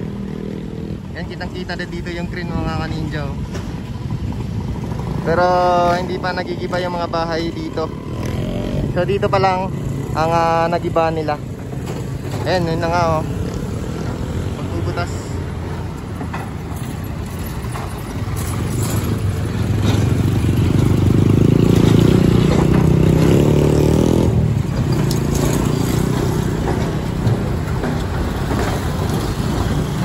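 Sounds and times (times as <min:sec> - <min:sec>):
traffic rumble: 0:00.0 - 0:30.0
heavy engine running: 0:09.0 - 0:30.0.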